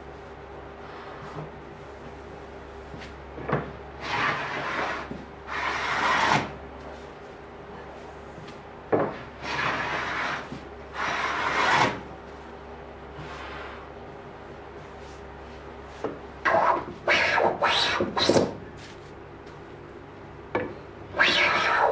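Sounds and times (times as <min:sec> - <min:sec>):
hand plane rasping on wood: 0:11.0 - 0:12.0, 0:21.2 - 0:21.9.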